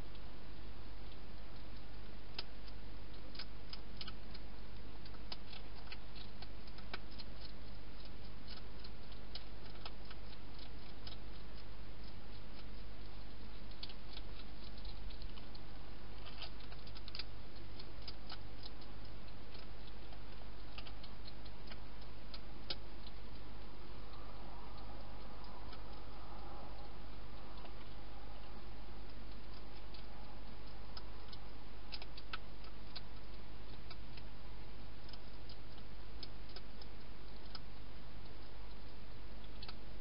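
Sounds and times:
hedgehog chewing dry food: 0.0s - 40.0s
steady hiss and low hum: 0.0s - 40.0s.

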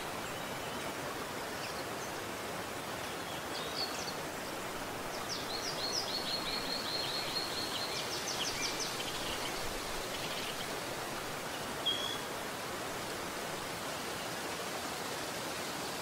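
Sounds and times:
songbird singing: 0.0s - 12.5s
stream flowing over rocks: 0.0s - 16.0s.

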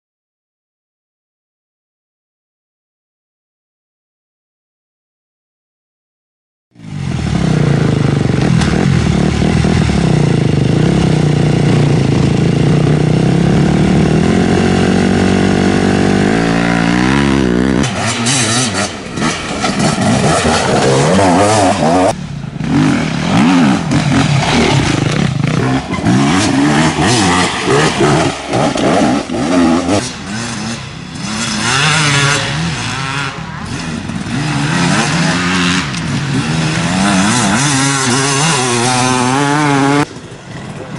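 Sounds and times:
dirt bike engines revving: 6.8s - 40.9s.

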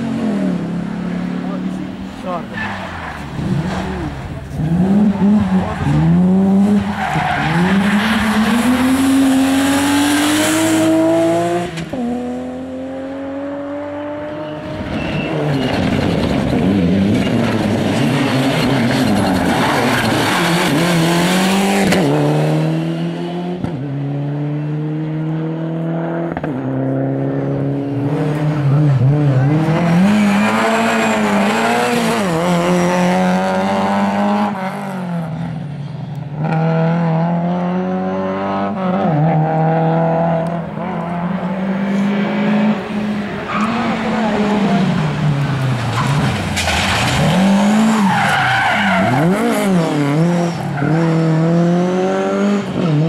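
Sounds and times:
rally car engines revving: 0.0s - 53.0s
tyre squeal: 14.4s - 16.3s.

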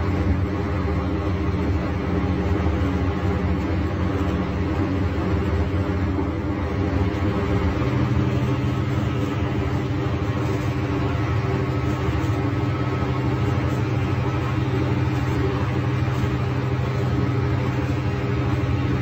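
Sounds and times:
bus diesel engine running: 0.0s - 19.0s.

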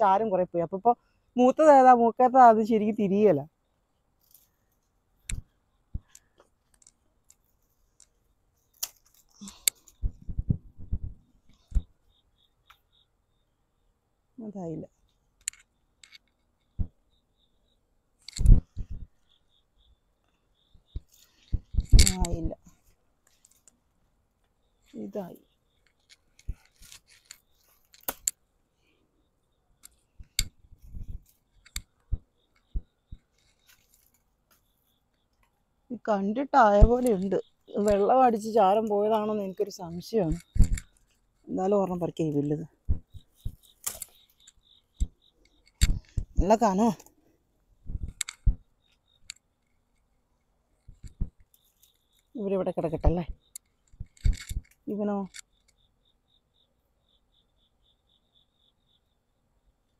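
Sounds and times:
leaves rustling: 4.2s - 11.9s, 36.0s - 45.1s
shears snipping: 6.1s - 10.1s, 21.0s - 23.8s, 24.9s - 28.4s, 36.6s - 47.1s.

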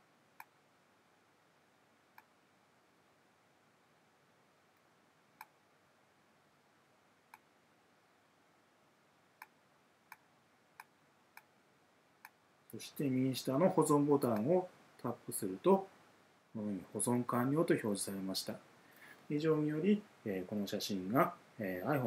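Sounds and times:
computer mouse clicks: 5.4s - 5.6s.

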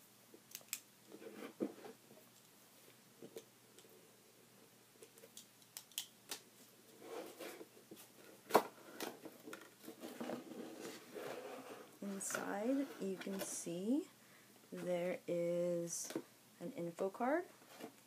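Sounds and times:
cardboard rustling and scraping: 1.1s - 2.0s, 6.9s - 13.5s.

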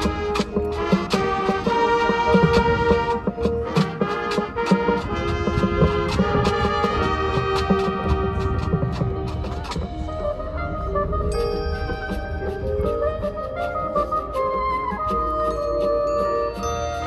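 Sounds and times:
drum and percussion hits: 0.0s - 10.2s
brass sustained chords: 0.0s - 14.9s.

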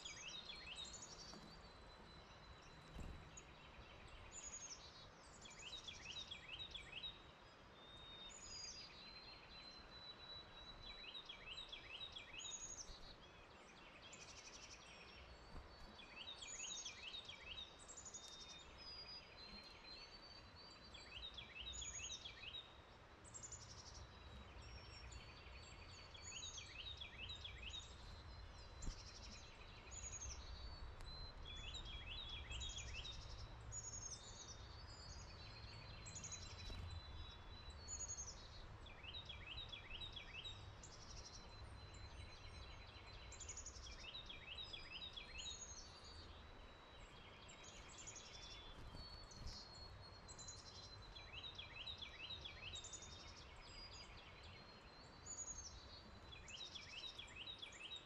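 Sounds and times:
songbirds singing: 0.0s - 58.0s
faint low rumble: 27.0s - 43.0s.

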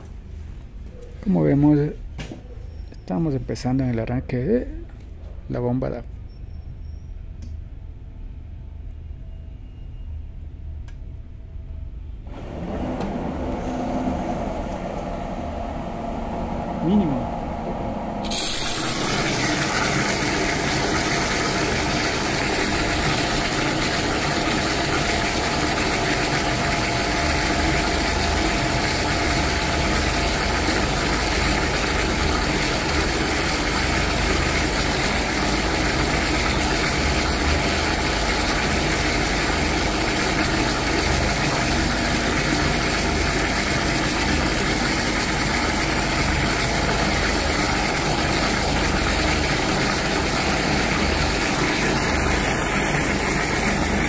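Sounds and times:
electric water pump running: 12.3s - 54.0s.

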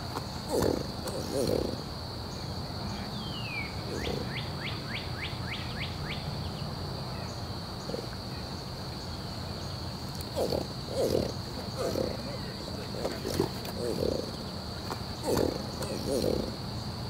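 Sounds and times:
bird calling: 0.0s - 1.9s, 3.0s - 6.2s, 10.1s - 16.6s.

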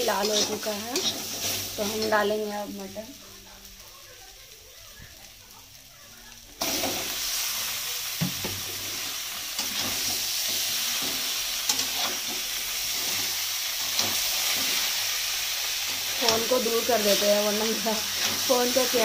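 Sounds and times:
spatula scraping pan: 0.0s - 2.4s
meat sizzling in hot oil: 0.0s - 19.0s.

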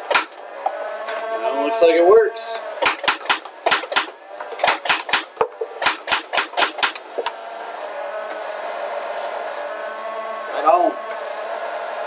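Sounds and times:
motors whirring: 0.0s - 12.0s
toy blaster shots clacking: 2.8s - 7.0s.

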